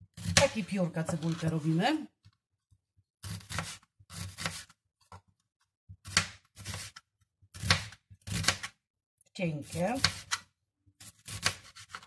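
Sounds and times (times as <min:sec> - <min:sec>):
knife slicing onion on board: 0:03.2 - 0:04.8, 0:06.0 - 0:08.8, 0:09.6 - 0:12.0.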